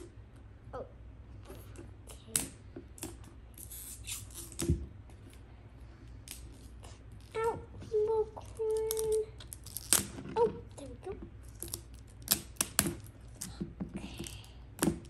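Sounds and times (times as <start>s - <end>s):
wrapping crackling and tearing: 8.4s - 10.4s, 11.4s - 13.6s.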